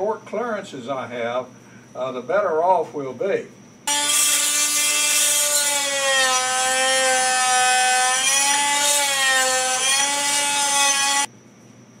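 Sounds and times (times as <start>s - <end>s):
oscillating multi-tool scraping: 3.9s - 11.3s.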